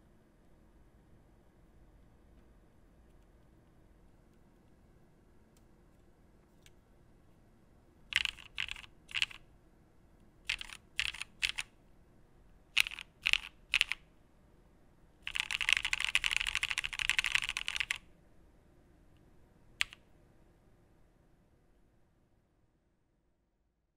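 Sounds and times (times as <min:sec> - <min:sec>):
mechanical keyboard typing: 0:08.1 - 0:09.4, 0:10.5 - 0:11.7, 0:12.8 - 0:14.0, 0:15.2 - 0:18.0, 0:19.8 - 0:20.0.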